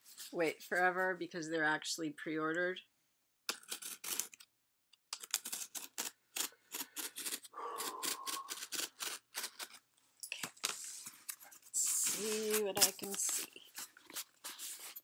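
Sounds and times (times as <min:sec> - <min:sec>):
cardboard crinkling and tearing: 0:10.4 - 0:15.0.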